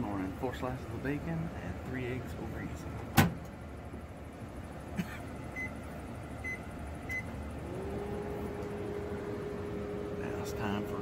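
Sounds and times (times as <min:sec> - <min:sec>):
microwave door clacking shut: 0:03.1 - 0:03.4.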